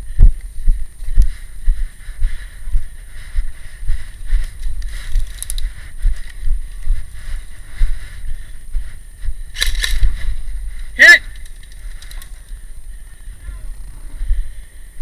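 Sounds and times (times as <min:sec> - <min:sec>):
low rumble of wind: 0:00.0 - 0:15.0
sharp clicks: 0:04.6 - 0:06.4, 0:09.5 - 0:10.3, 0:11.2 - 0:12.6.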